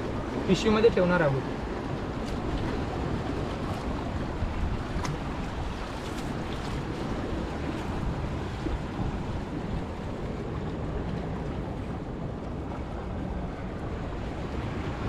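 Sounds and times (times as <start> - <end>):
waves washing on rocky shore: 0.0 - 15.0
wind on microphone: 1.4 - 15.0.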